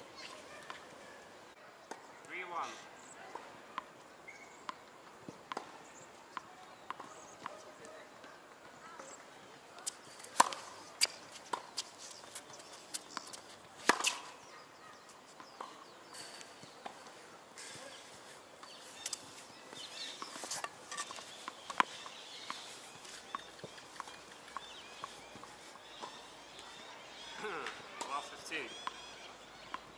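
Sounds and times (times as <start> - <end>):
tennis balls bouncing on court: 4.6 - 8.0, 9.8 - 14.3, 18.6 - 26.7
tennis balls struck by rackets: 4.7 - 5.8, 9.8 - 14.3.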